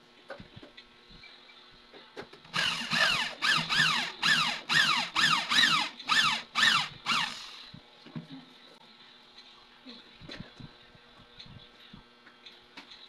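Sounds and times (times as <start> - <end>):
drill bit screeching into metal: 2.6 - 7.6.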